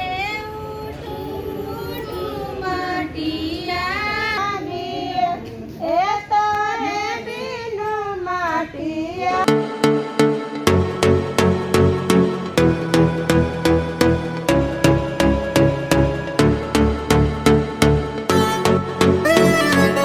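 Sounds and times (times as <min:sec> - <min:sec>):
music with steady beat: 0:09.4 - 0:20.0.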